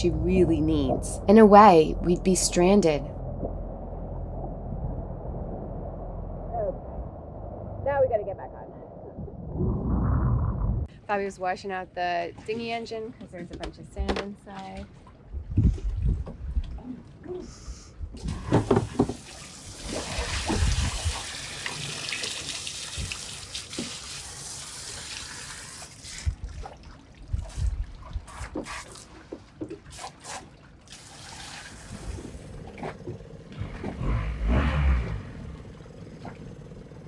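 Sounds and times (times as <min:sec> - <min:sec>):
low rumble: 0:00.0 - 0:11.0
hose spraying water: 0:18.3 - 0:26.3, 0:29.9 - 0:32.4.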